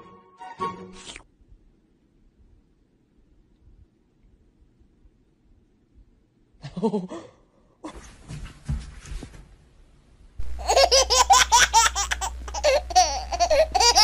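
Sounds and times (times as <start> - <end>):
person laughing hard: 6.6 - 7.3, 10.6 - 14.0.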